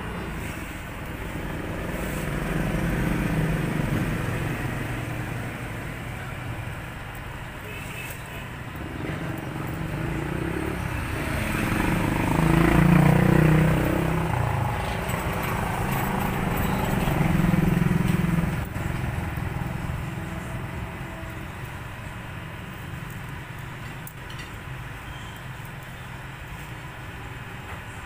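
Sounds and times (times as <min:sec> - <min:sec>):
vehicle engine passing by: 0:00.0 - 0:07.0, 0:08.7 - 0:22.0.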